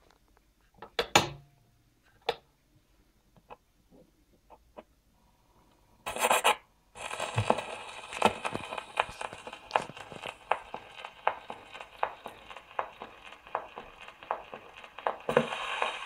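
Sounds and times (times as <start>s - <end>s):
record hiss and crackle: 0.0s - 16.0s
record clicks: 7.0s - 16.0s.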